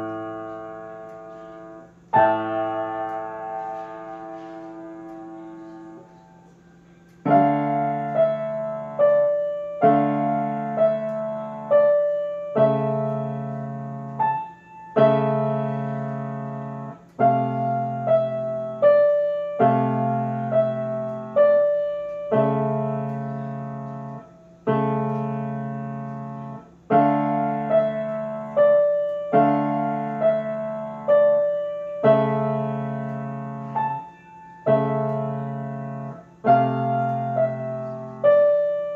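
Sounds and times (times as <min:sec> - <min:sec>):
grand piano notes and chords: 0:00.0 - 0:38.9.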